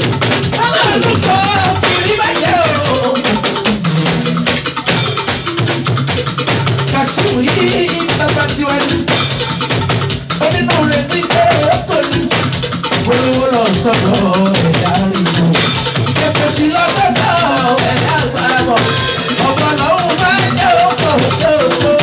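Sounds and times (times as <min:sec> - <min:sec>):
party music with drums and shakers: 0:00.0 - 0:22.0
man singing into a microphone: 0:00.5 - 0:03.9, 0:06.9 - 0:09.4, 0:10.3 - 0:22.0.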